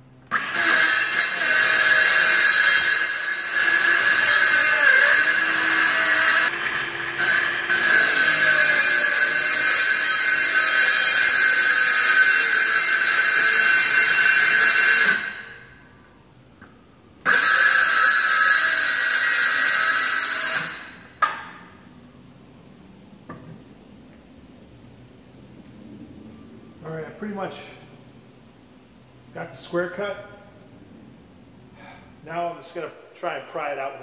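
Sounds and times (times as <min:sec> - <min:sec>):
circular saw cutting wood: 0:00.3 - 0:15.6, 0:17.2 - 0:21.2.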